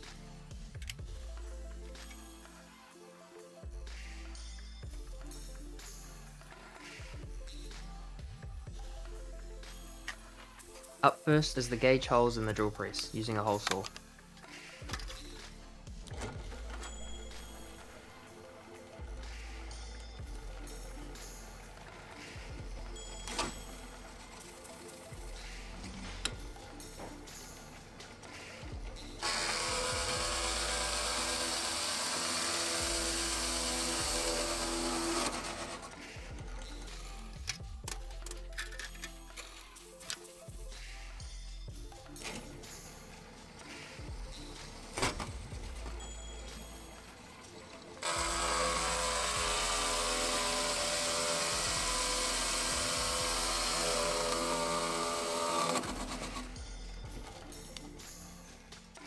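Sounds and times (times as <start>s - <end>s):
drill press hole saw cutting: 29.2s - 37.3s, 46.6s - 56.6s.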